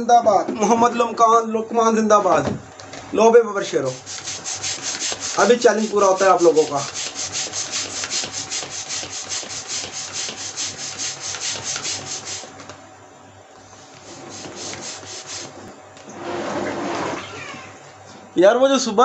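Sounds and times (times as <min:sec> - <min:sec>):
hand air pump strokes: 0:03.9 - 0:12.6, 0:14.0 - 0:15.6.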